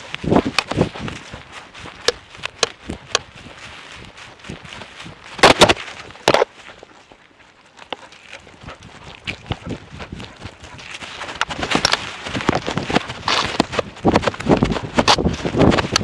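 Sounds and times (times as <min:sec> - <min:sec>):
camera knocking and rustling: 0:00.0 - 0:03.4, 0:05.3 - 0:06.8, 0:10.5 - 0:16.0
loud sharp cracks: 0:05.4 - 0:06.4.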